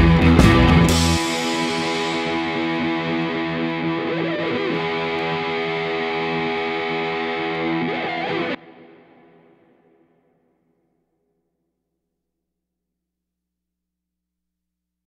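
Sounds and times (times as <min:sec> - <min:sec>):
distorted electric guitar: 0:00.0 - 0:10.4.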